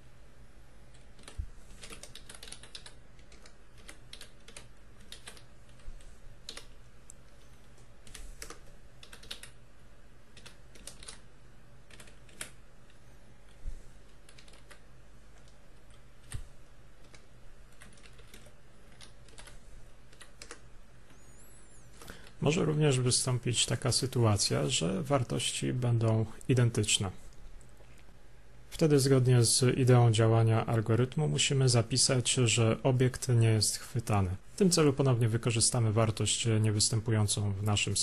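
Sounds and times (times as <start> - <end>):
faint low hum: 0.0 - 38.0
keyboard typing: 0.9 - 9.6, 10.3 - 21.3.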